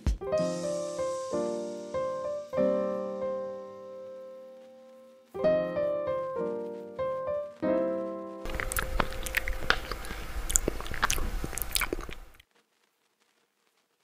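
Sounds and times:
gentle piano chords: 0.0 - 12.3
crackly crunching noise: 3.3 - 14.0.

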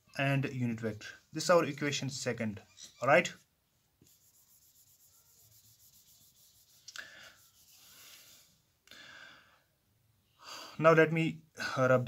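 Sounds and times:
board eraser rubbing: 4.0 - 8.4.

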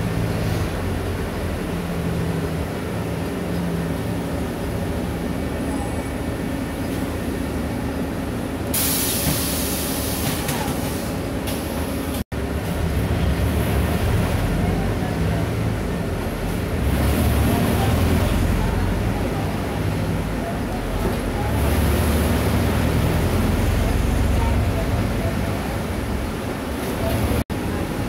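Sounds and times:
bus engine and road noise: 0.0 - 28.0
loud air hiss: 8.7 - 10.4.

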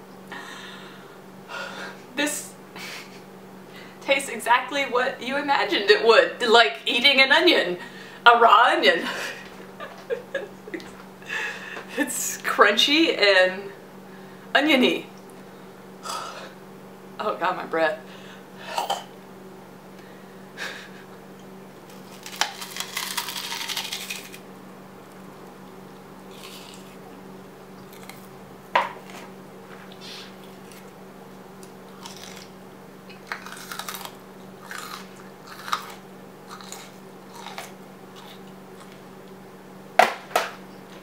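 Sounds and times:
person chewing raw onion: 21.3 - 24.4, 25.1 - 27.2, 27.8 - 28.4, 29.0 - 39.4.

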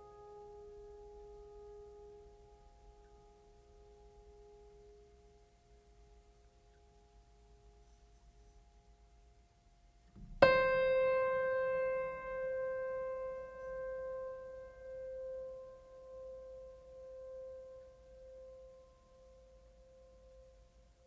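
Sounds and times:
faint held music tones: 0.0 - 21.0
piano note ringing: 10.2 - 20.4.

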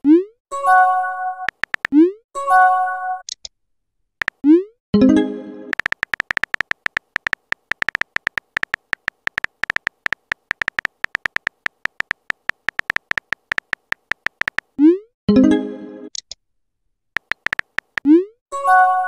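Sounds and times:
phone keyboard typing clicks: 1.5 - 2.0, 5.7 - 14.7, 17.2 - 18.1.

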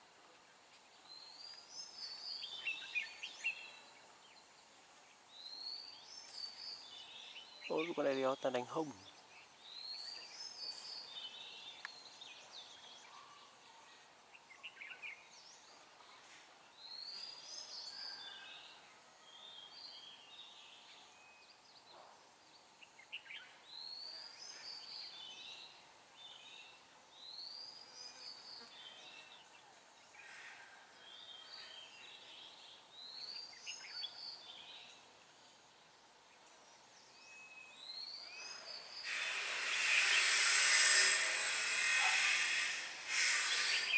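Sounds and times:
loud hiss: 38.4 - 43.9.

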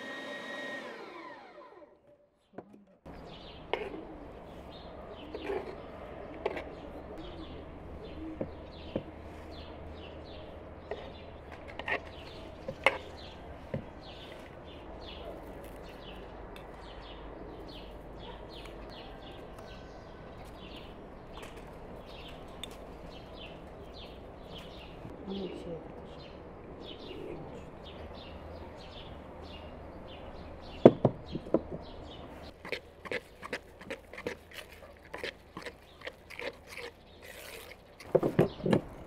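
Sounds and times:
small birds chirping: 2.1 - 39.0
sharp knocks: 30.8 - 31.9.

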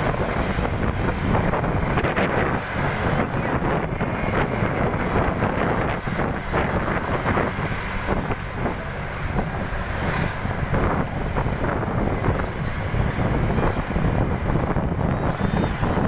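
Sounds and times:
bus rumbling on road: 0.0 - 16.0
wind rushing over microphone: 0.0 - 16.0.

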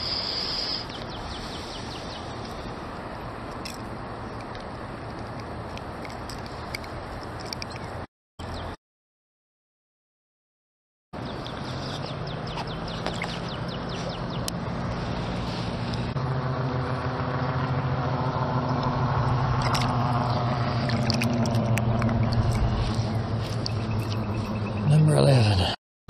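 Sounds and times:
engine humming: 11.2 - 25.8.

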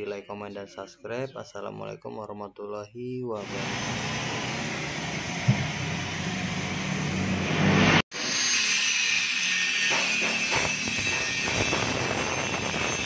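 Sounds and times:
angle grinder whining on metal: 3.4 - 13.0.

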